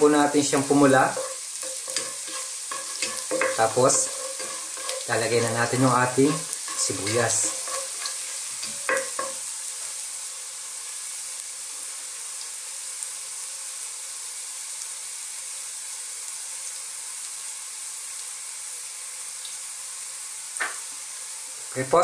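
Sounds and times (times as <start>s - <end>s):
garlic sizzling in oil: 0.0s - 22.0s.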